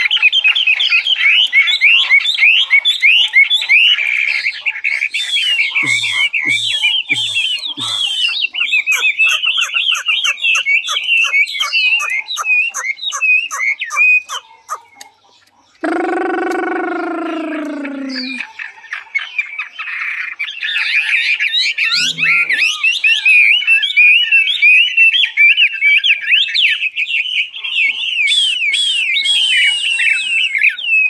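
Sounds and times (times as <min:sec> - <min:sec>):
bird singing whistled phrases: 0:04.9 - 0:14.8, 0:15.8 - 0:18.6, 0:20.4 - 0:31.0.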